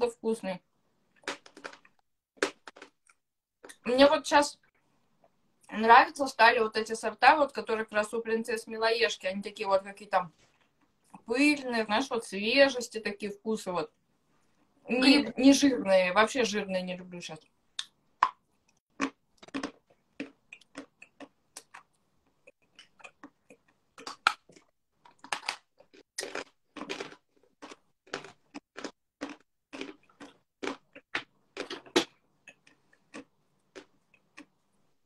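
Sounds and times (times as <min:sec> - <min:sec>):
chalk crunching while chewed: 0:19.0 - 0:34.6.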